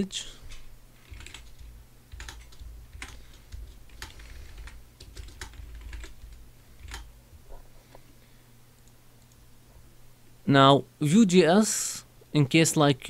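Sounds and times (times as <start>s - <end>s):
faint steady low hum: 0.0s - 13.0s
typing on computer keyboard: 0.5s - 7.1s.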